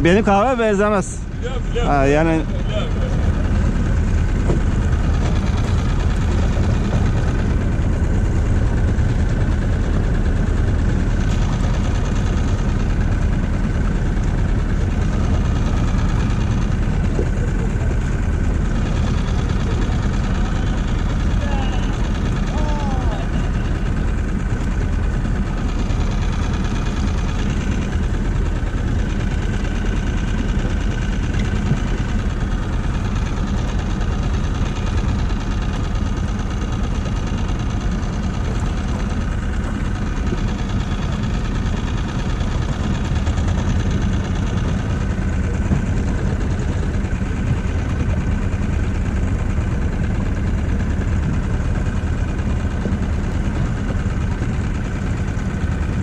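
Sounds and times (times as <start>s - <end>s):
outboard motor running: 0.0s - 56.0s.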